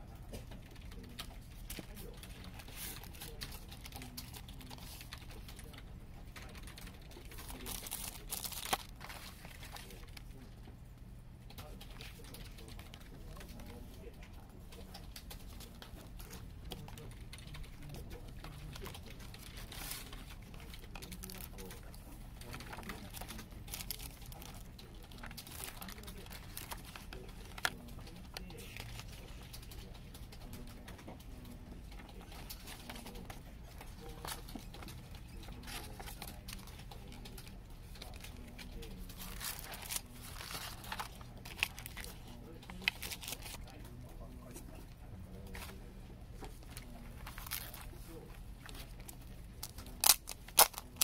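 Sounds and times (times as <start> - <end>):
paper rustle: 6.4 - 10.3, 14.8 - 31.1, 32.0 - 43.8, 45.4 - 51.0.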